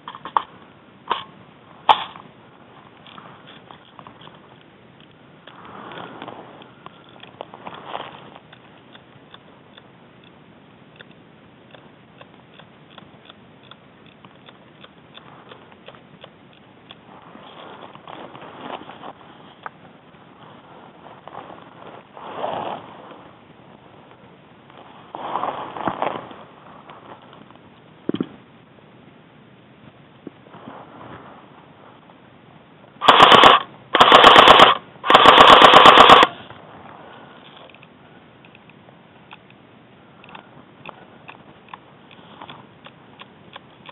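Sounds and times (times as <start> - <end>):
steady hiss: 0.0 - 43.9
airsoft gun automatic bursts: 33.0 - 36.4.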